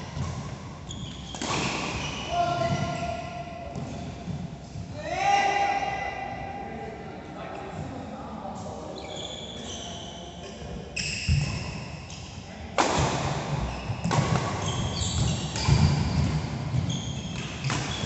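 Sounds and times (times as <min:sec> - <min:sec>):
shoes squeaking on court floor: 0:00.0 - 0:04.8, 0:08.9 - 0:12.3, 0:13.5 - 0:18.0.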